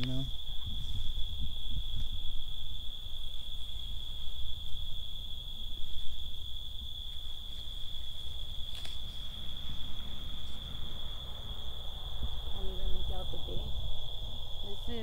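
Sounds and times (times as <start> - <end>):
night insects trilling: 0.0 - 15.0.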